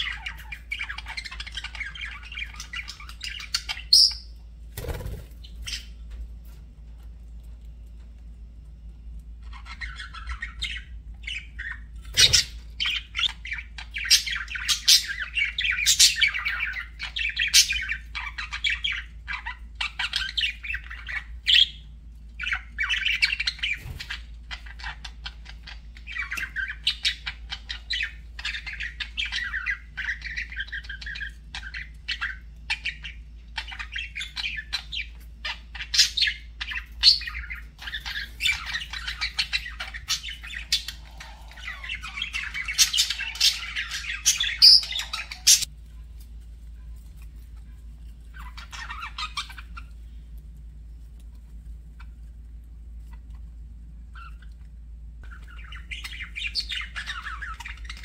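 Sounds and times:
sharp squawks and chirps: 0:09.4 - 0:45.7, 0:55.2 - 0:58.0
budgerigars chattering: 0:09.5 - 0:21.8, 0:22.4 - 0:45.7, 0:48.3 - 0:49.9, 0:55.2 - 0:58.0.

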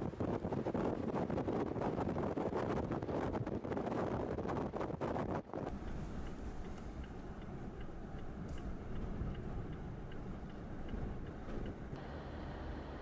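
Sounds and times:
blizzard wind rumbling: 0:00.0 - 0:12.0
faint even ticking: 0:05.7 - 0:12.0.

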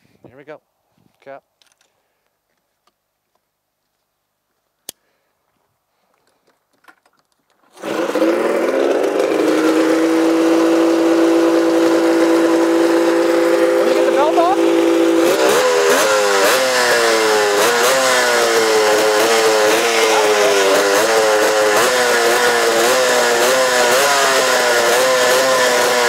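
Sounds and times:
snowmobile engine starting and running: 0:07.6 - 0:26.0.

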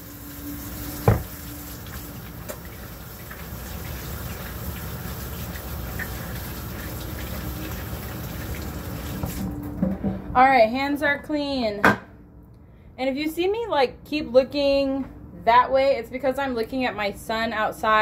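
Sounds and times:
faucet running into sink: 0:00.0 - 0:09.6.

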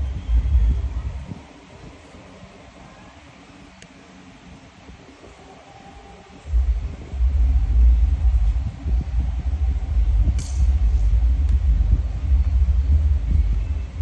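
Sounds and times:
loud low rumble: 0:00.0 - 0:01.4, 0:06.5 - 0:14.0.

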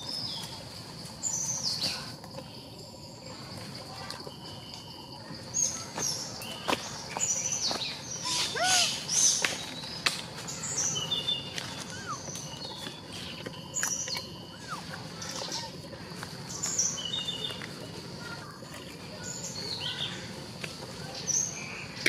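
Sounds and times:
forest birds chirping: 0:00.0 - 0:22.0
high insect-like tone: 0:00.0 - 0:22.0.

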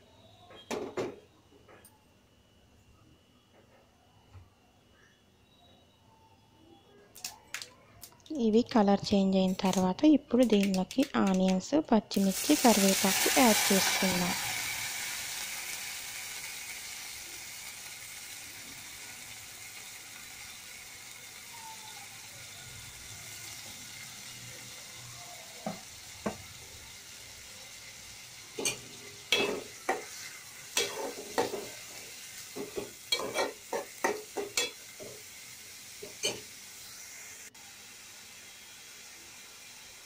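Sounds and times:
onions sizzling in hot oil: 0:08.4 - 0:40.0
metal spoon scraping a pot: 0:33.1 - 0:33.9.

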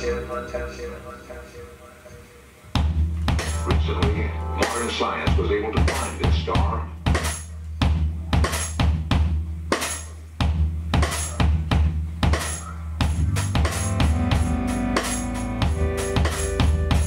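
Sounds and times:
drum kit groove: 0:02.7 - 0:17.0
deep sustained bass: 0:03.0 - 0:05.2
sustained keyboard chords: 0:03.2 - 0:06.8, 0:13.0 - 0:17.0.

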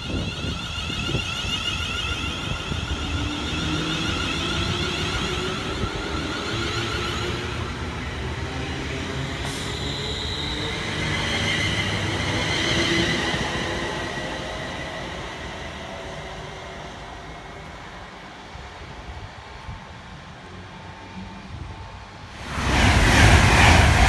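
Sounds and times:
electric train motors whining: 0:00.0 - 0:16.2
wheels rumbling on rail: 0:00.0 - 0:24.0.

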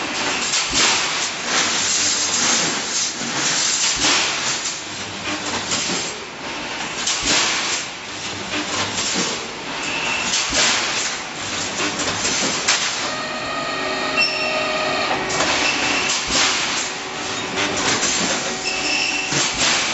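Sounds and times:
welding heads hissing and crackling: 0:00.2 - 0:06.0, 0:15.1 - 0:19.9.

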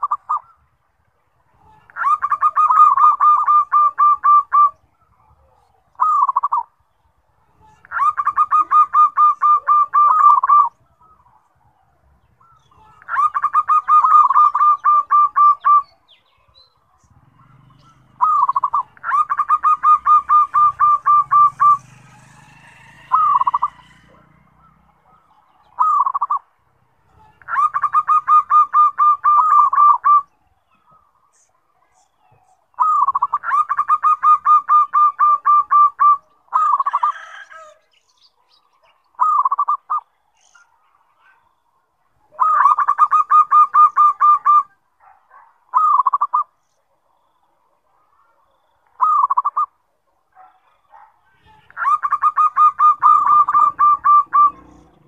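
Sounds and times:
dove rolling coos: 0:01.9 - 0:04.8, 0:05.4 - 0:06.7, 0:07.8 - 0:11.2, 0:12.4 - 0:15.8, 0:17.2 - 0:25.2, 0:25.8 - 0:26.4, 0:27.4 - 0:30.3, 0:32.8 - 0:37.8, 0:39.2 - 0:40.0, 0:42.3 - 0:44.7, 0:45.7 - 0:46.5, 0:49.0 - 0:49.7, 0:51.6 - 0:55.0.

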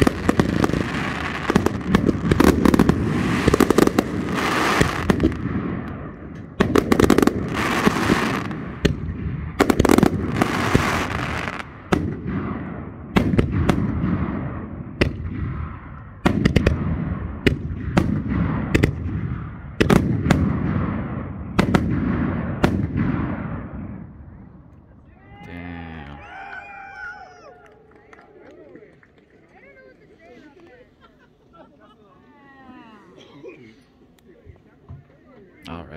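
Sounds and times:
firework bangs: 0:00.0 - 0:24.2.

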